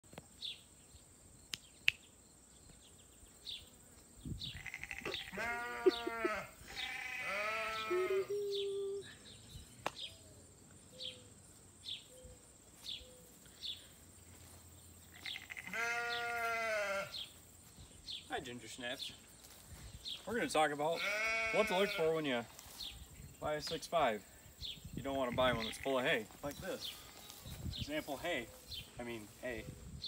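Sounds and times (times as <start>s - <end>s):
sheep bleating: 4.6s - 8.4s, 15.1s - 17.2s, 21.0s - 22.2s.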